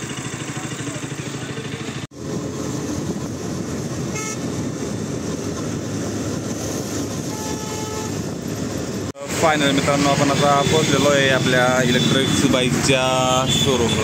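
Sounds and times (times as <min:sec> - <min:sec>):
wind and road noise: 0:00.0 - 0:14.0
vehicle horn tooting: 0:04.1 - 0:04.6, 0:07.2 - 0:08.2, 0:13.3 - 0:14.0.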